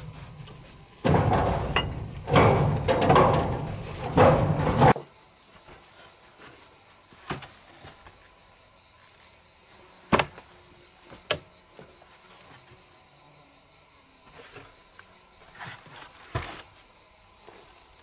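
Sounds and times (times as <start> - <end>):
insects chirring: 0.0 - 18.0
wooden boards knocking: 1.0 - 5.1.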